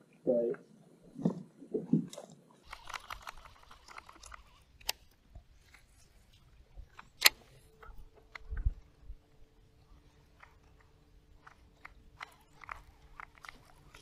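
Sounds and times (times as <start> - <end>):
faint steady hum: 0.0 - 14.0
sharp clicks: 2.6 - 5.1.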